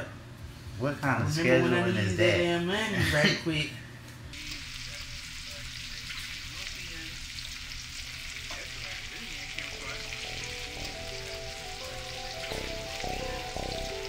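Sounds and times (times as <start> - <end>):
chicken sizzling in oil: 4.3 - 14.0.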